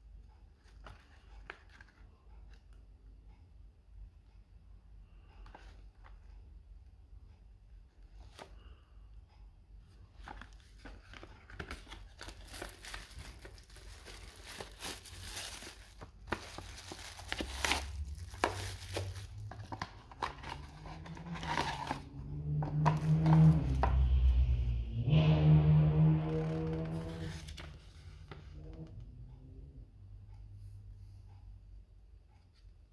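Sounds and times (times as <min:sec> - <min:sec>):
plastic packaging rustling: 0:10.2 - 0:24.0
cardboard box being opened: 0:10.3 - 0:23.9
low hum: 0:12.5 - 0:31.8.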